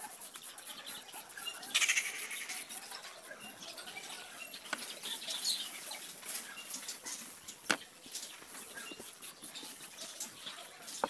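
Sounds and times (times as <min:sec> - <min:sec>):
pencil scratching on paper: 0:00.0 - 0:11.0.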